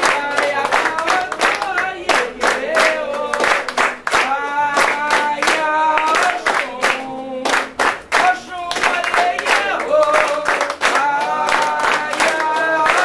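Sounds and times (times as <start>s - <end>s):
group singing a devotional chant: 0.0s - 13.0s
rhythmic handclapping: 0.0s - 13.0s.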